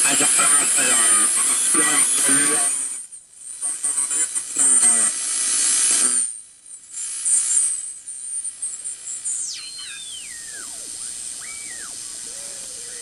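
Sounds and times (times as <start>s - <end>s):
radio static hiss: 0.0s - 13.0s
high radio whistle: 7.2s - 13.0s.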